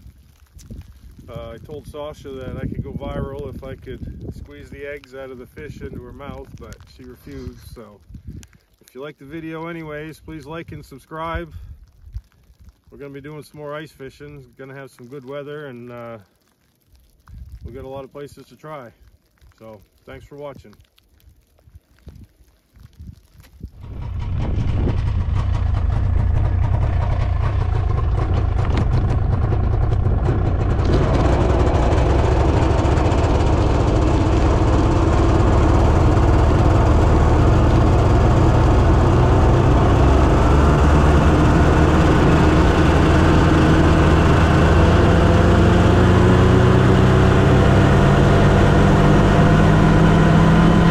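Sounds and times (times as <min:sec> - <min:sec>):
rising engine whine: 0:23.8 - 0:50.9
snowmobile engine running: 0:23.8 - 0:50.9.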